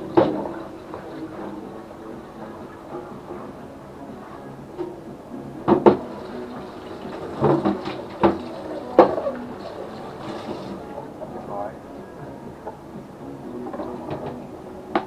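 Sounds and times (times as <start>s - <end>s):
tap running: 5.7s - 11.1s.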